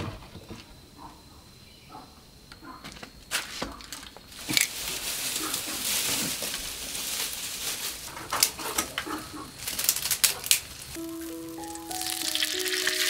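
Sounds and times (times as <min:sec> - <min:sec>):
steady hiss of stove fire: 0:04.3 - 0:12.0.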